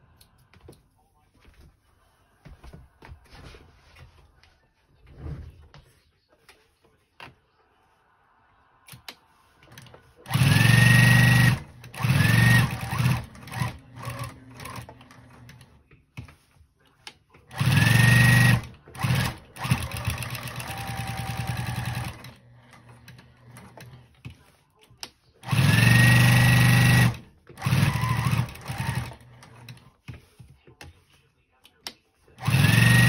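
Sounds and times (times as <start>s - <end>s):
sewing machine stitching: 9.6s - 15.8s, 17.5s - 24.5s, 25.4s - 30.4s, 32.4s - 33.0s.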